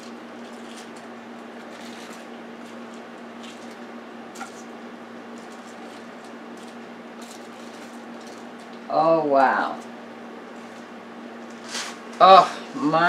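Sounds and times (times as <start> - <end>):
paper rustling and crinkling: 0.0 - 4.7, 5.4 - 8.8, 10.6 - 12.2
steady low hum: 0.0 - 13.0.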